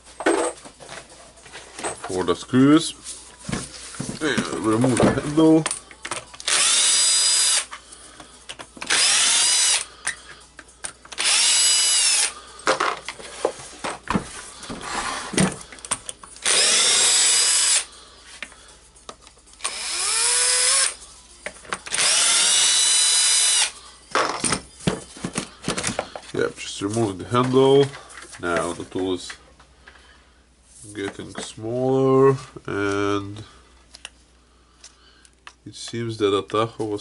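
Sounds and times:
cordless drill whining: 6.4 - 7.7, 8.8 - 9.9, 11.1 - 12.4, 16.4 - 17.9, 19.6 - 21.0, 21.9 - 23.7.

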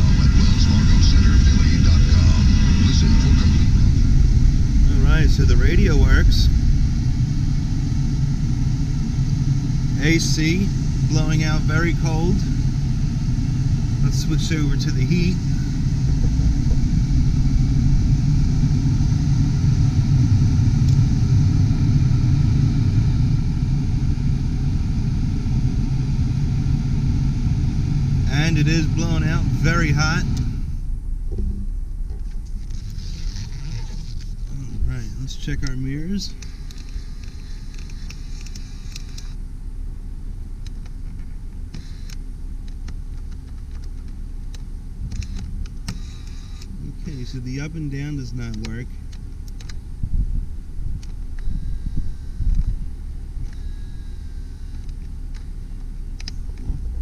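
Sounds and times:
car engine idling: 0.0 - 57.0
heater blower fan running: 0.0 - 57.0
mirror motor whirring: 32.2 - 39.4, 40.7 - 43.5, 45.0 - 47.7, 51.0 - 56.6.

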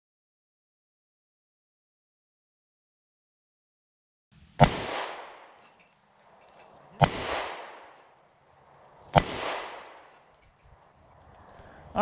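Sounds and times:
pistol shots: 4.6 - 5.7, 6.9 - 8.2, 9.0 - 10.2
bullet hitting steel plate: 4.6 - 5.8, 6.5 - 8.1, 9.1 - 10.3.

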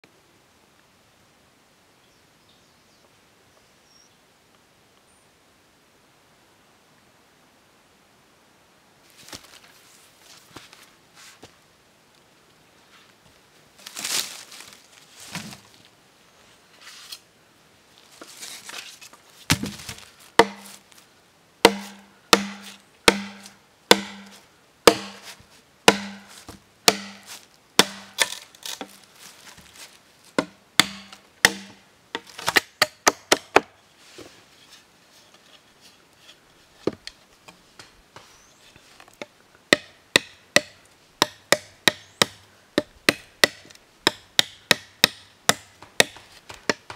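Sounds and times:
knife chopping bamboo: 19.5 - 20.8, 21.6 - 29.0, 30.4 - 33.7, 39.7 - 46.9.

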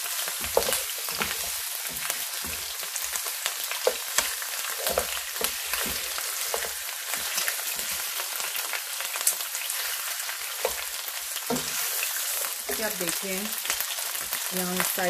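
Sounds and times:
meat sizzling in oil: 0.0 - 15.0
spatula knocking in pan: 0.4 - 2.9, 3.8 - 8.0, 10.5 - 11.8.

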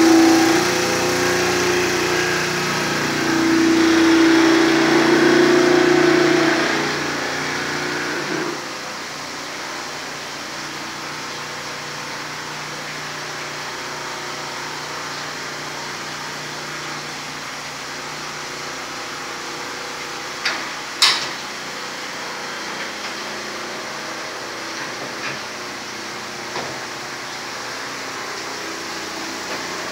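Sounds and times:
electric motor hum: 0.0 - 19.7.

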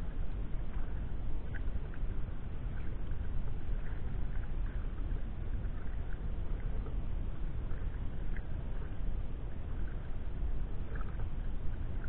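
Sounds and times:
paddle water splashes and drips: 0.0 - 12.0
wind rumble on microphone: 0.0 - 12.0.

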